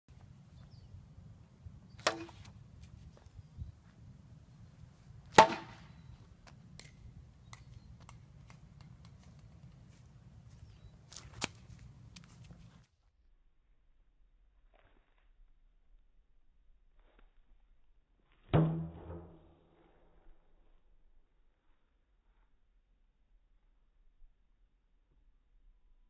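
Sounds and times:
plastic bat hitting plastic ball: 2.0 - 2.5, 5.3 - 9.4, 18.5 - 19.6.

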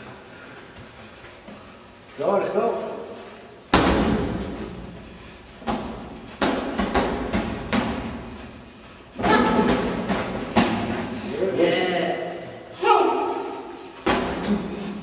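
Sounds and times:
boxing gloves punching: 5.6 - 8.3, 9.2 - 11.0, 14.0 - 14.8.

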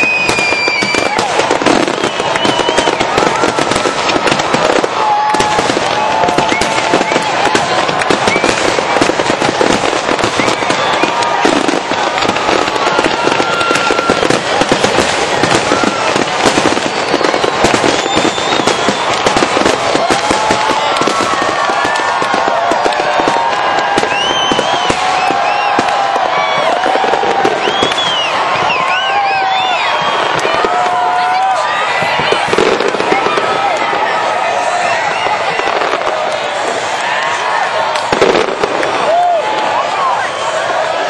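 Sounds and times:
fireworks bursting and crackling: 0.0 - 41.0.

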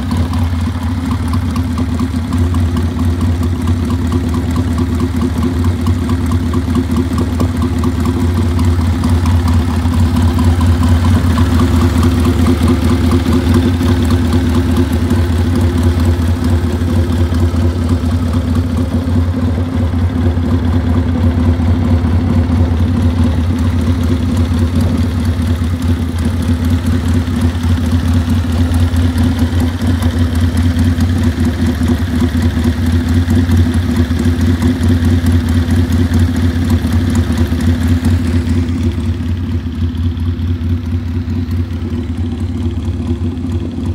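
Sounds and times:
motorcycle engine idling: 0.0 - 43.9.

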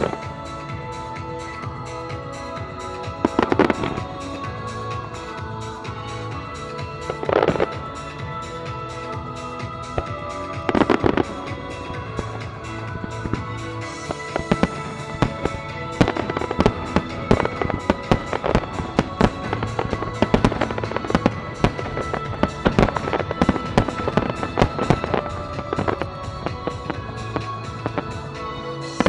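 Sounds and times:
music playing: 0.0 - 29.0
fireworks bangs: 10.0 - 29.0.

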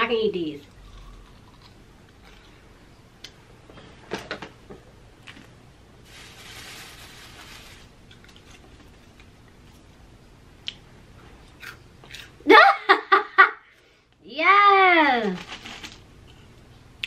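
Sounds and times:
snacks rattling in plastic canister: 15.4 - 16.0.

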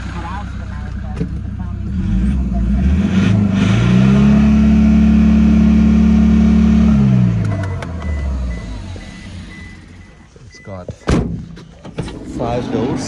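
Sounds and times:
diesel engine revving: 0.0 - 10.2.

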